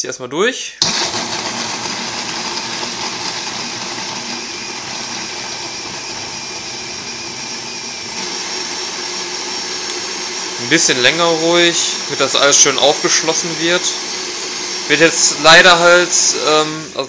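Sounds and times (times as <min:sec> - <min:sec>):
blender running: 0:00.8 - 0:17.0.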